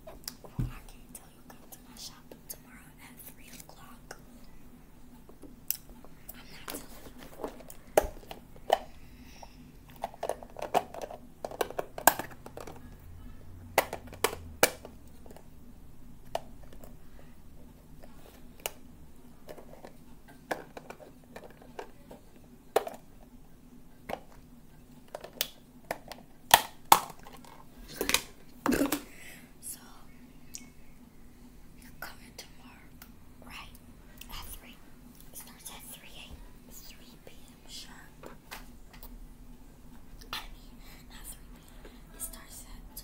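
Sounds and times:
plastic container clicking and crackling: 0:09.9 - 0:12.8.

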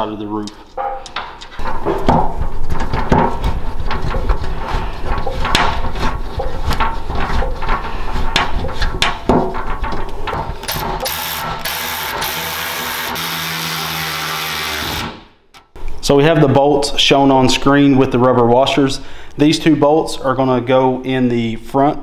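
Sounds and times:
bolts and nuts clicking on metal: 0:00.4 - 0:13.4
electric ratchet running: 0:10.6 - 0:15.3.

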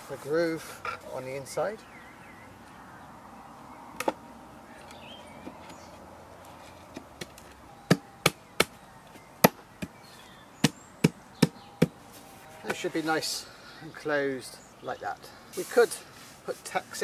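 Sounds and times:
sharp wooden knocks: 0:10.6 - 0:12.0.

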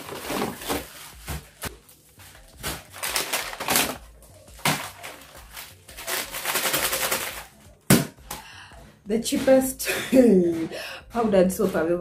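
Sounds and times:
plastic packaging crinkling: 0:00.0 - 0:07.7.

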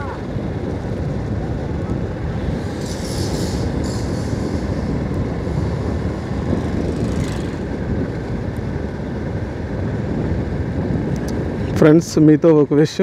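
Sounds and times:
motorcycle engine running: 0:00.0 - 0:11.2
wind rumble on microphone: 0:00.0 - 0:13.0.

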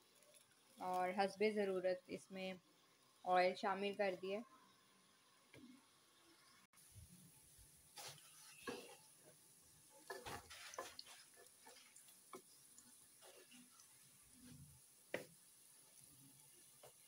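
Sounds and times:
onions frying in oil: 0:00.0 - 0:01.9, 0:02.7 - 0:17.0
spatula scraping a pot: 0:08.0 - 0:09.2, 0:10.0 - 0:15.3.

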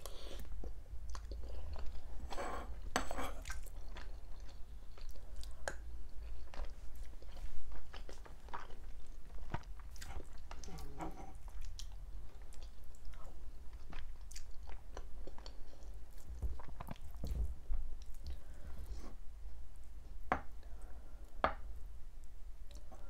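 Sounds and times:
close chewing: 0:00.6 - 0:17.4.

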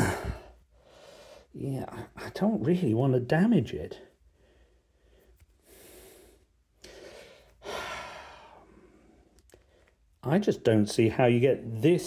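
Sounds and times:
man breathing heavily: 0:00.0 - 0:01.5, 0:04.2 - 0:10.0.

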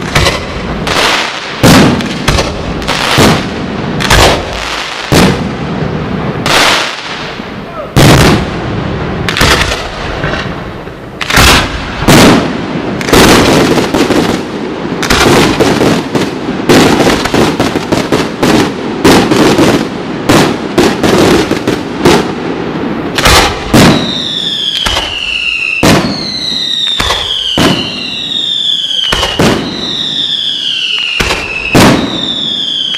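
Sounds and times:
fireworks bangs and crackling: 0:00.0 - 0:32.9
falling whistles: 0:23.9 - 0:32.9.

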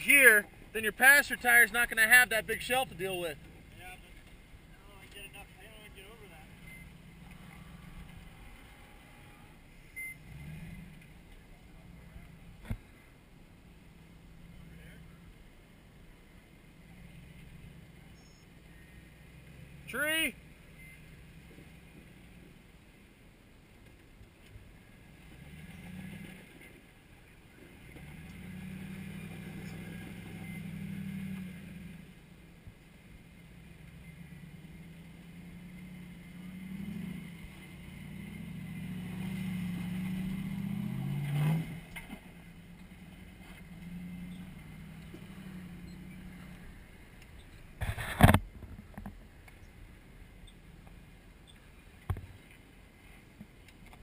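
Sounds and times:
car engine revving: 0:00.0 - 0:13.0, 0:24.9 - 0:26.9, 0:27.5 - 0:32.2, 0:33.2 - 0:48.4.

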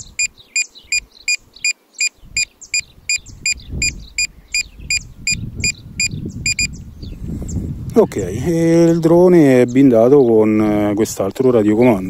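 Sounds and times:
remote controller beeping rapidly: 0:04.6 - 0:06.7.

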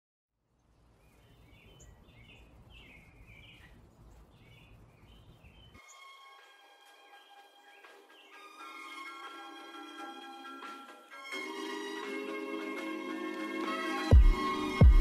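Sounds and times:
faint city rumble: 0:00.4 - 0:05.8
birds chirping: 0:00.4 - 0:10.8.

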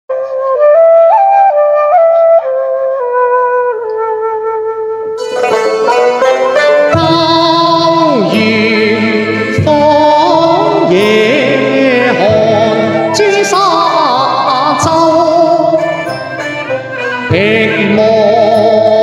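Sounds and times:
traditional instrumental accompaniment: 0:05.1 - 0:19.0
man singing opera with vibrato: 0:05.4 - 0:16.1, 0:17.2 - 0:19.0.

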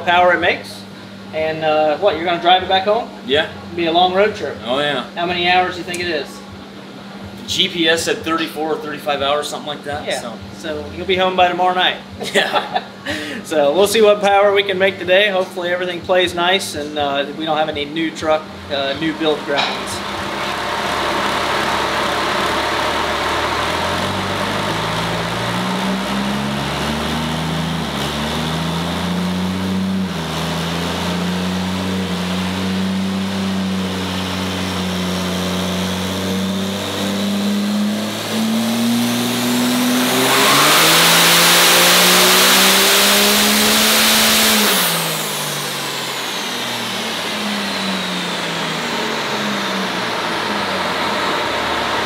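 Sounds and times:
diesel engine revving: 0:17.0 - 0:52.0
turbo whine spooling down: 0:17.4 - 0:52.0.

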